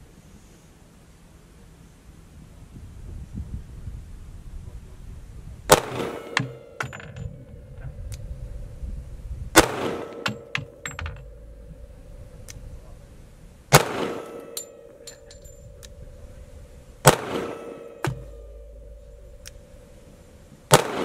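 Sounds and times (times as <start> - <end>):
faint steady hum: 0.0 - 21.0
pistol shots with echo: 5.7 - 7.4, 9.6 - 12.7, 13.7 - 20.0, 20.7 - 21.0
light clicks and knocks: 10.2 - 11.5.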